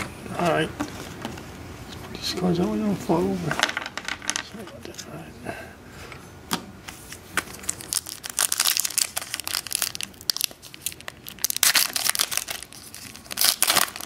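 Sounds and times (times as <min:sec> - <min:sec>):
foil wrapper tearing and crinkling: 0:07.6 - 0:14.0.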